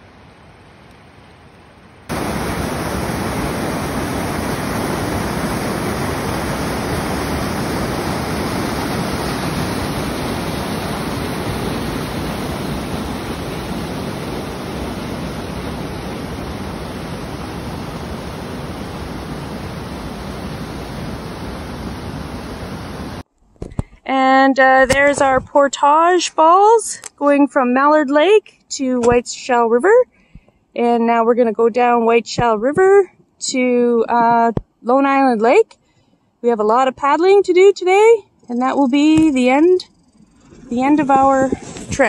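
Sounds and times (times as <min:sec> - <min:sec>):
faint water wash: 0:01.9 - 0:23.3
whitewater rapids rushing: 0:02.1 - 0:23.2.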